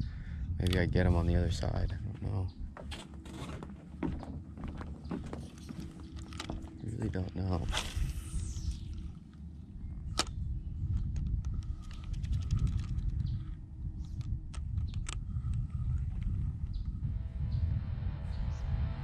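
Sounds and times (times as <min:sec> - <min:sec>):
wind on microphone: 0:00.0 - 0:02.9, 0:03.5 - 0:19.0.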